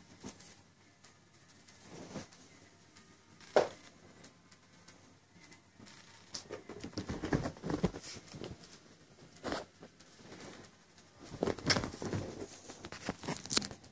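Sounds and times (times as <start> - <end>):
kitten scrambling on sofa: 6.5 - 8.7.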